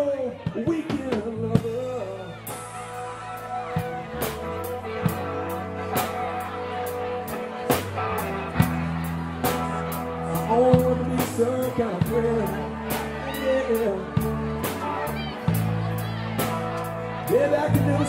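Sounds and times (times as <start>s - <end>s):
bass and guitar chords: 0.0s - 18.0s
drum kit with cymbals: 0.5s - 12.3s
person singing: 10.1s - 15.7s.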